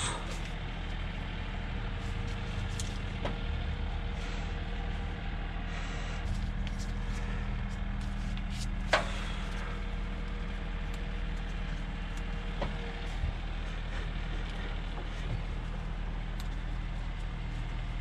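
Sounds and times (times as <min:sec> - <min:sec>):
motor humming: 0:00.0 - 0:18.0.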